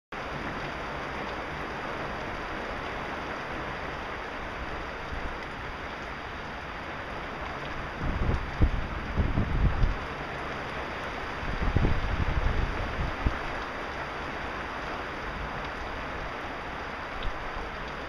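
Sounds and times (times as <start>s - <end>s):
heavy rain pouring: 0.1s - 18.0s
wind buffeting microphone: 8.0s - 10.0s, 11.4s - 13.5s.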